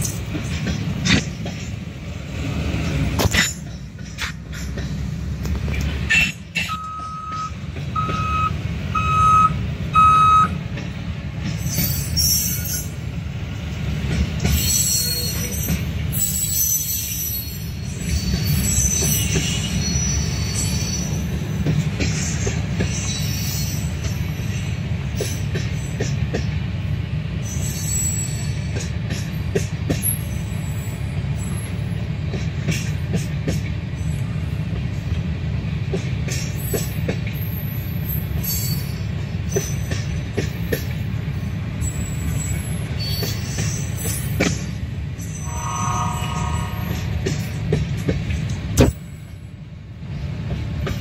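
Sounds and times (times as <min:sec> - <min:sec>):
train knocks: 0:00.0 - 0:12.2, 0:13.0 - 0:16.2, 0:21.0 - 0:26.8, 0:28.6 - 0:30.4, 0:38.3 - 0:49.2
train wheels rumbling on rails: 0:00.0 - 0:51.0
high-pitched wheel squeal: 0:45.2 - 0:47.4.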